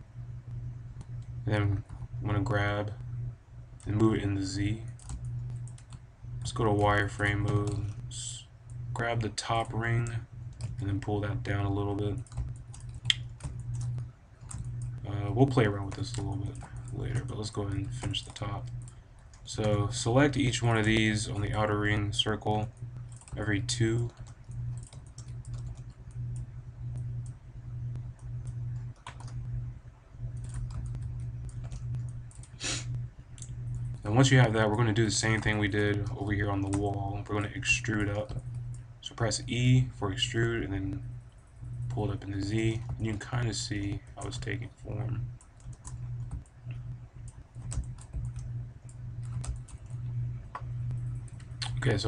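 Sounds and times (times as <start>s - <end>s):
low steady hum: 0.0s - 52.0s
computer mouse clicking: 4.9s - 8.0s, 12.2s - 19.8s, 23.0s - 29.5s, 30.3s - 32.6s, 45.4s - 51.8s
keyboard keys clicking: 28.5s - 29.4s, 30.3s - 32.5s, 47.3s - 48.5s, 49.2s - 50.6s.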